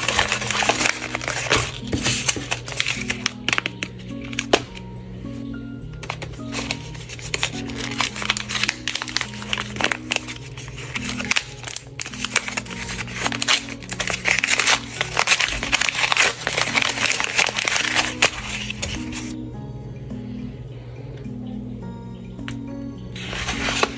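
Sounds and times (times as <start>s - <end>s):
paper crinkling and rustling: 0.0s - 4.8s, 6.0s - 19.4s, 23.2s - 23.9s
background music simple melody: 0.0s - 23.9s.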